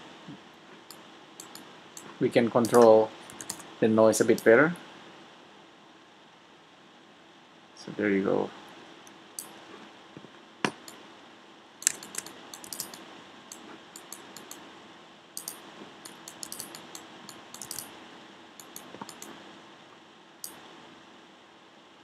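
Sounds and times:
faint steady hum: 0.0 - 22.0
mouse and keyboard clicks: 0.9 - 3.7, 11.8 - 14.6, 15.4 - 17.9, 18.6 - 19.4.

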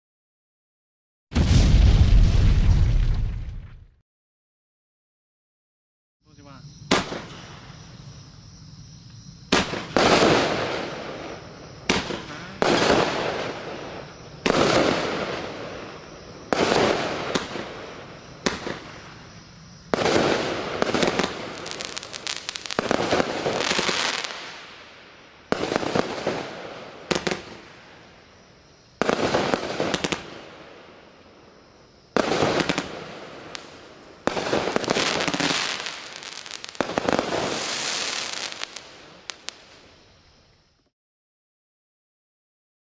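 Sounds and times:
fireworks bangs and bursts: 1.3 - 3.3, 6.9 - 7.7, 9.5 - 28.0, 29.0 - 30.8, 32.1 - 39.9.

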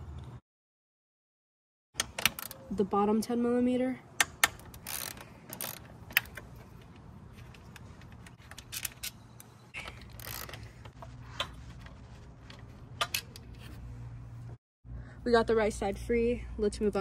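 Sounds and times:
ratchet metallic clicks: 4.2 - 6.5, 8.4 - 10.9.

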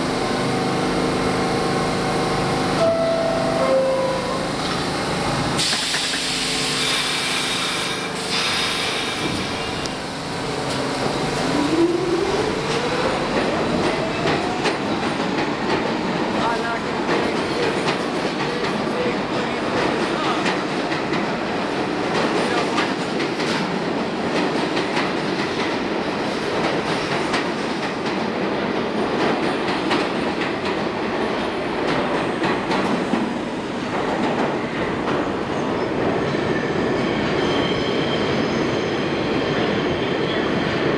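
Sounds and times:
subway train running: 0.0 - 40.9.

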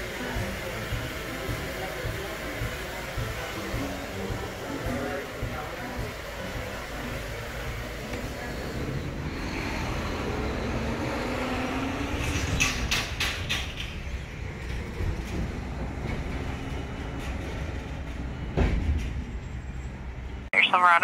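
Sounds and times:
vehicle engine passing: 7.8 - 13.2.

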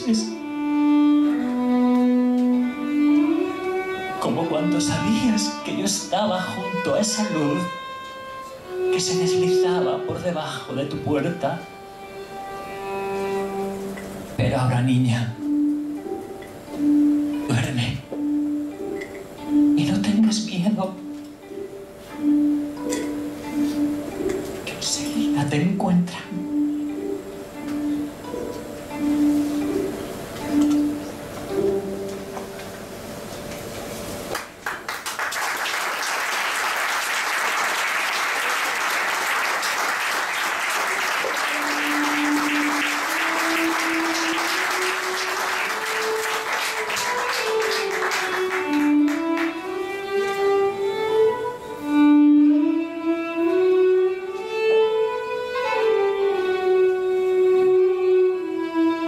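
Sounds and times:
solo violin melody: 0.0 - 32.7, 40.2 - 59.0
audience applause: 34.3 - 49.6.

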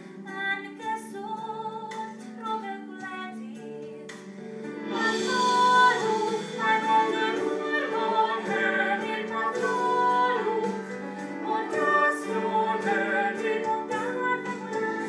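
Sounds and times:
operatic singing: 4.9 - 15.0.

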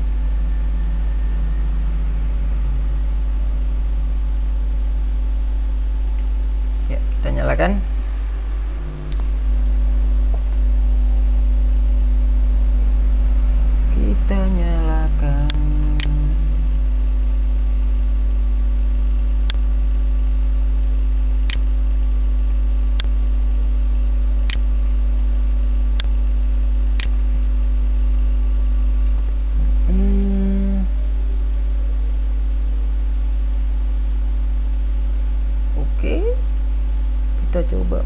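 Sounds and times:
falling hum-like vocal sound: 0.0 - 19.4, 28.2 - 34.7
steady tones: 0.0 - 20.6
electrical mains hum: 0.0 - 38.0.

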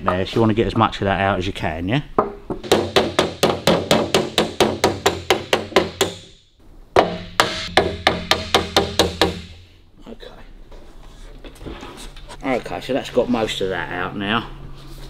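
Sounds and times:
hammer tapping metal panel: 7.0 - 9.5.

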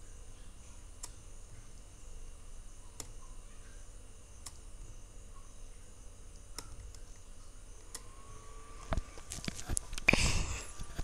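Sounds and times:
room tone hum and hiss: 0.0 - 11.0
computer mouse clicks: 3.0 - 3.2, 4.4 - 4.7, 6.3 - 8.2.

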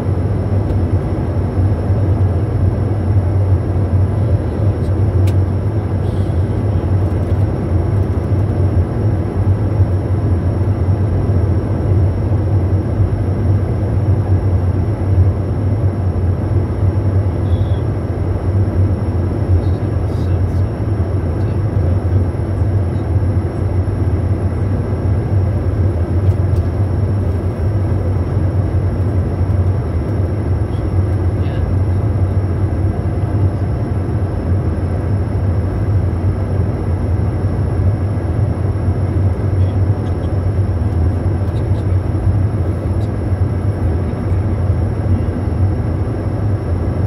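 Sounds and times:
low jet drone: 0.0 - 47.0
air rushing past cockpit: 3.8 - 8.7
faint high whines: 17.0 - 47.0.

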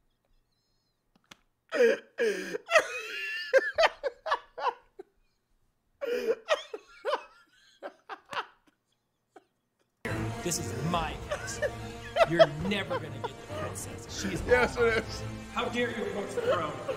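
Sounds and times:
man laughing hard: 1.7 - 5.2, 6.0 - 9.9, 11.0 - 15.2.

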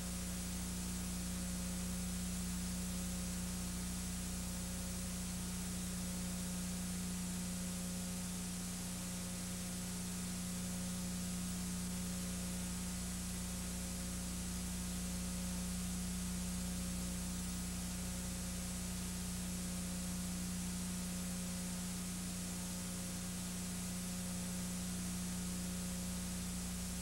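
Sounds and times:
low electrical hum: 0.0 - 27.0.

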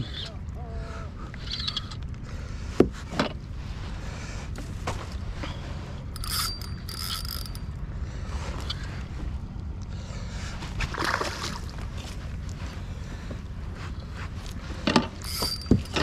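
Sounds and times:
fishing reel gears whirring: 6.1 - 7.8, 15.2 - 16.0.

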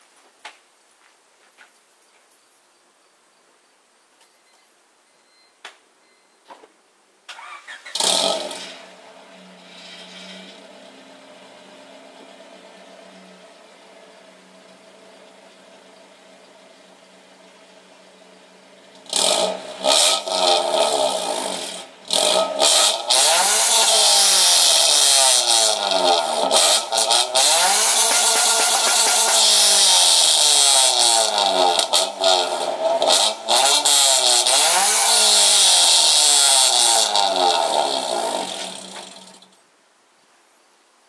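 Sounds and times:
car engine revving: 7.4 - 39.5.

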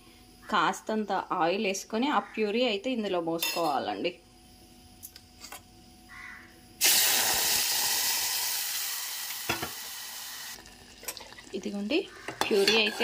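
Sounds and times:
puree sizzling in hot oil: 6.8 - 13.0.

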